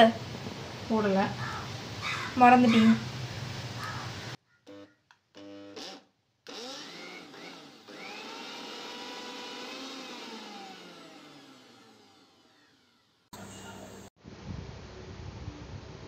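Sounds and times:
mixer grinder motor whine: 4.7 - 13.3.

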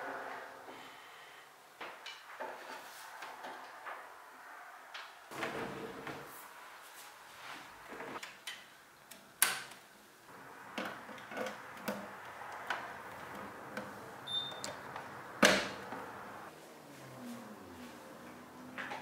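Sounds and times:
faint beep: 14.3 - 14.7.

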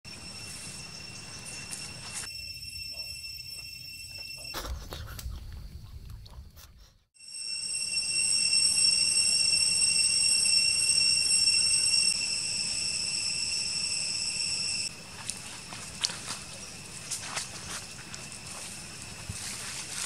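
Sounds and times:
loud shrill insect chorus: 0.1 - 4.6, 7.2 - 20.0
footsteps in dry leaves: 14.9 - 20.0.

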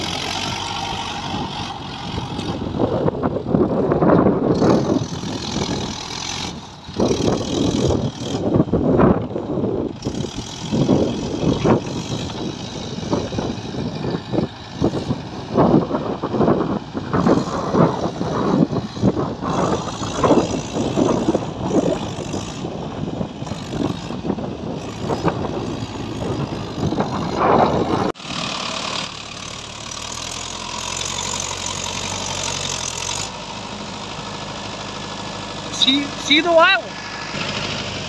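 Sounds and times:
gusty wind noise: 0.0 - 28.2
tractor diesel engine: 0.0 - 38.0.

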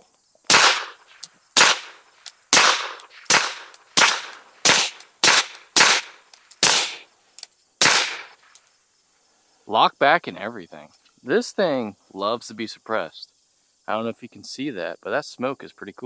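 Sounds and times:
suppressed pistol shots: 0.5 - 7.0, 7.8 - 8.4
faint pistol action clicks: 1.1 - 6.8.

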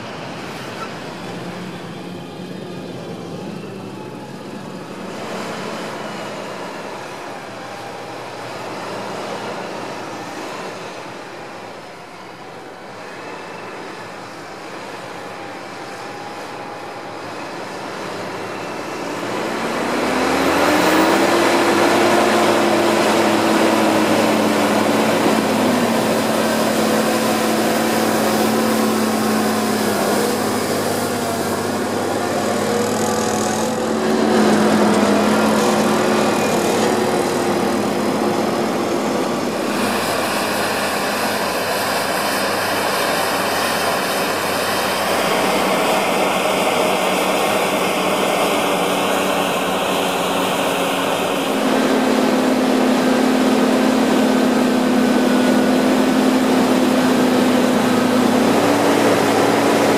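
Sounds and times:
tractor diesel engine under load: 0.0 - 59.9.

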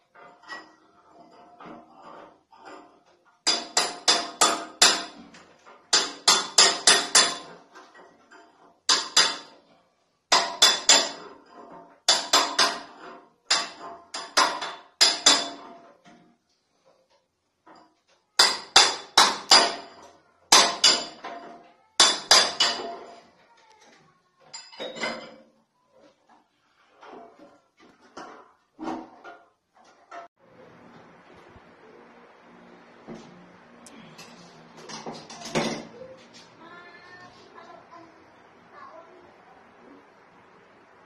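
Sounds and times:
hammer striking metal: 3.5 - 5.2, 5.9 - 7.6, 8.9 - 9.5, 13.5 - 15.7, 18.4 - 21.4, 22.0 - 22.9.

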